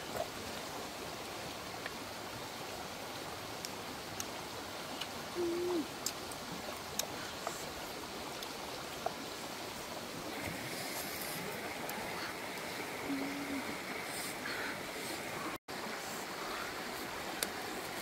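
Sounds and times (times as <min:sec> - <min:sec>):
outdoor background rush: 0:00.0 - 0:18.0
low hoot-like tone: 0:05.4 - 0:05.9.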